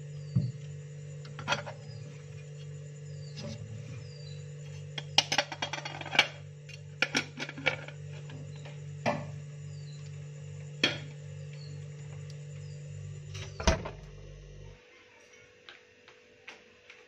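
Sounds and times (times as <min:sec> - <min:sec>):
steady low hum: 0:00.0 - 0:14.8
dishes knocking and clinking: 0:05.0 - 0:06.4, 0:10.8 - 0:11.1.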